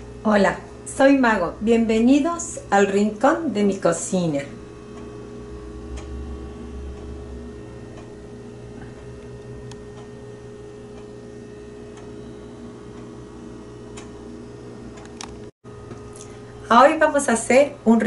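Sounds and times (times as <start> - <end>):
steady low hum: 0.0 - 18.0
wall clock ticking: 4.8 - 10.2.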